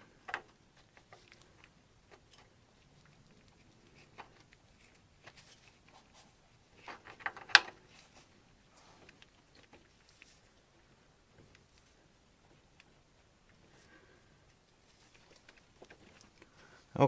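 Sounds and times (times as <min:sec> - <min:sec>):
ball joint clicking and scraping: 0:06.6 - 0:08.4.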